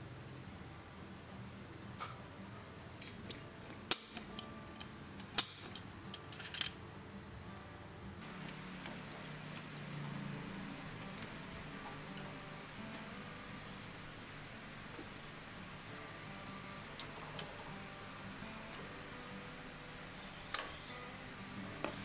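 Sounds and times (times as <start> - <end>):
center punch metallic clicks: 3.2 - 6.7
steady low hum: 7.5 - 22.0.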